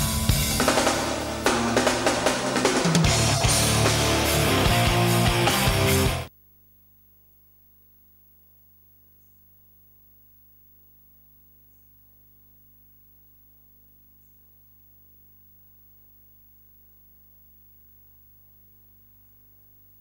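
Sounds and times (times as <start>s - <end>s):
faint electrical hum: 6.3s - 20.0s.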